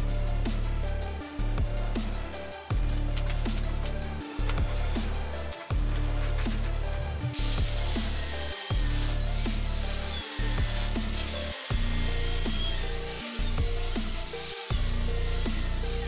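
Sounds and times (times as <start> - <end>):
background music with steady beat: 0.0 - 16.0
angle grinder cutting steel: 3.6 - 16.0.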